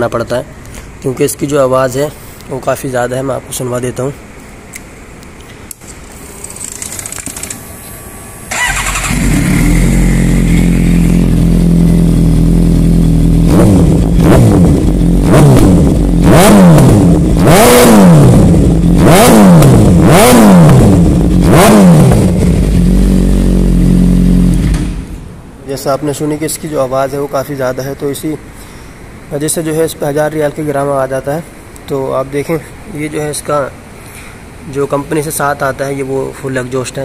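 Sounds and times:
motorcycle engine idling: 8.5 - 14.0
motorcycle engine revving: 8.5 - 25.2
motorcycle engine starting: 8.5 - 25.3.

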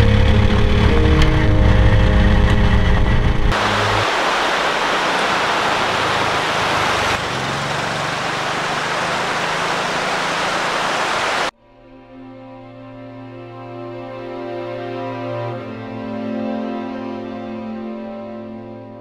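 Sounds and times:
mountain stream rushing: 3.5 - 11.5
small motorbike engine running: 5.6 - 11.4.

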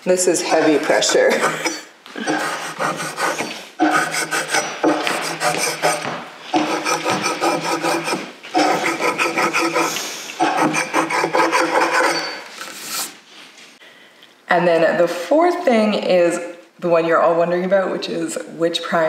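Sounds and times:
putty knife scraping painted boards: 0.4 - 13.2.

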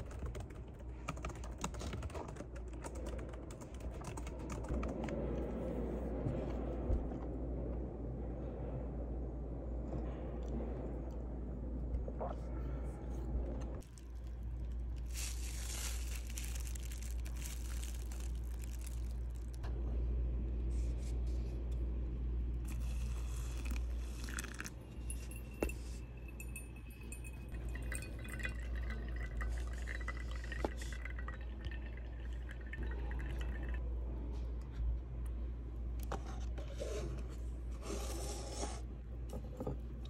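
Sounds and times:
low hum: 4.3 - 36.5
water trickling through coffee filter: 22.7 - 24.8, 26.4 - 33.8.

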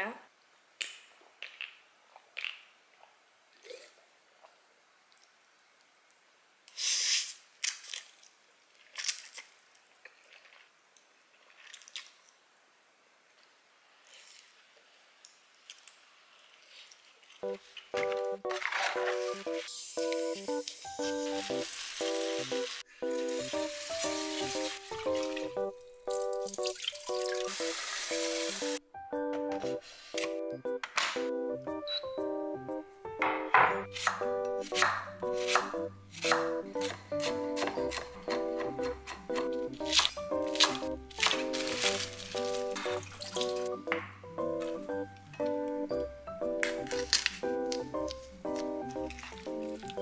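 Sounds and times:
background music with short notes: 17.4 - 50.0
tap water running and splashing: 19.9 - 25.5, 26.1 - 28.8
wet chewing: 46.7 - 50.0.

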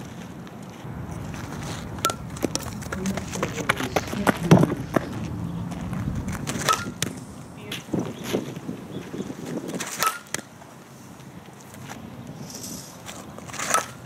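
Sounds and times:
bat striking ball: 1.9 - 2.9, 6.4 - 7.2, 9.8 - 10.6, 13.4 - 14.0.

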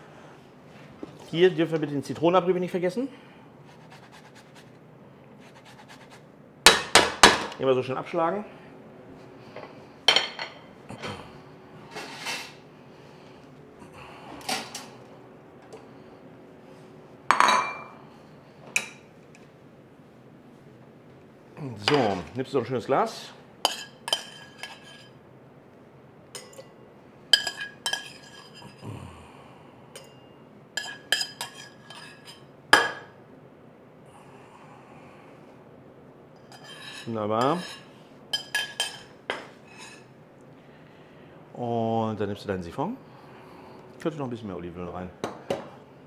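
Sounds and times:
bowls and utensils clattering: 9.6 - 11.2, 17.3 - 18.0, 23.7 - 25.2, 26.4 - 26.8, 27.4 - 28.8, 29.9 - 33.2, 36.4 - 40.1
metal spoon scraping saucepan: 23.7 - 25.2, 27.4 - 28.8, 30.8 - 32.5, 36.4 - 40.1.

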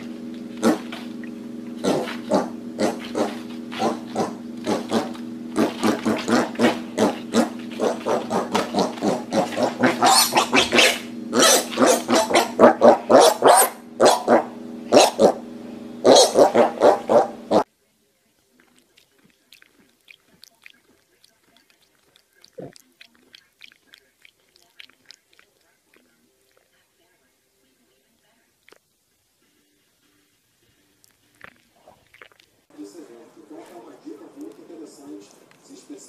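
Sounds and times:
piglets grunting: 1.8 - 13.6, 19.5 - 25.4.

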